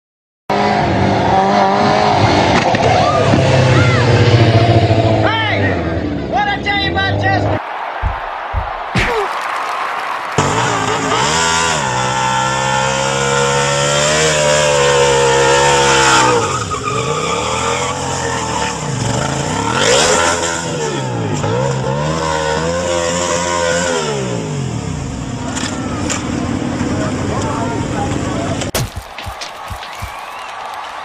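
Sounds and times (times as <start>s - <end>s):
motorcycle engine revving: 10.4s - 25.5s
tyre squeal: 16.0s - 18.9s.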